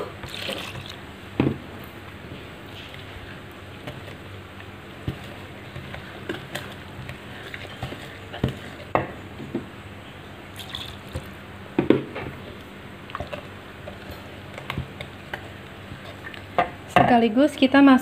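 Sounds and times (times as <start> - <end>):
whisk stirring thick batter: 2.9 - 8.9.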